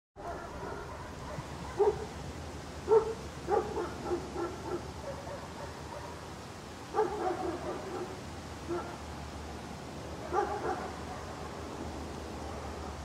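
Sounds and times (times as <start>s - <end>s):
dog barking: 0.2s - 2.2s, 2.9s - 6.2s, 6.9s - 9.0s, 10.2s - 11.6s
background noise: 0.2s - 13.0s.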